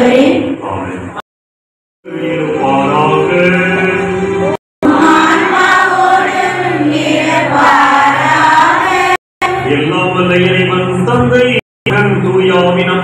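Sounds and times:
group chanting in held notes: 0:00.0 - 0:00.6, 0:04.8 - 0:09.8.

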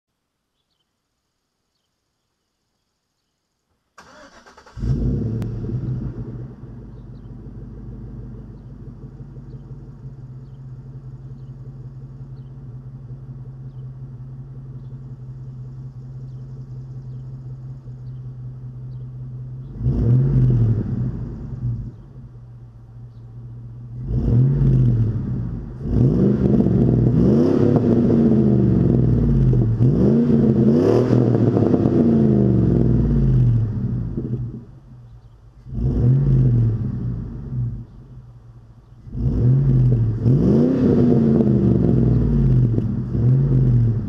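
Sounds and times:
car engine idling and revving: 0:04.0 - 0:44.0.

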